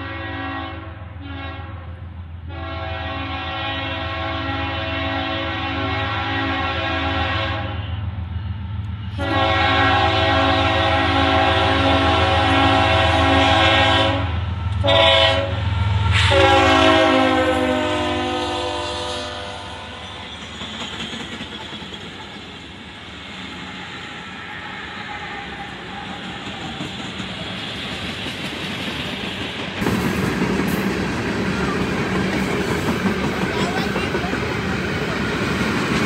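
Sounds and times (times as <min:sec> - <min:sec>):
train horn blasts: 0:00.0 - 0:08.1, 0:09.1 - 0:20.2
train wheels rolling on rails: 0:08.0 - 0:36.0.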